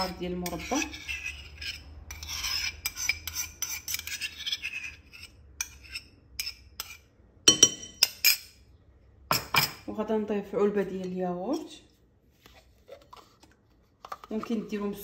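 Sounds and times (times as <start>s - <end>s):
metal spoon scraping ceramic bowl: 0.0s - 8.6s
spoon clinking against bowl: 7.5s - 8.5s.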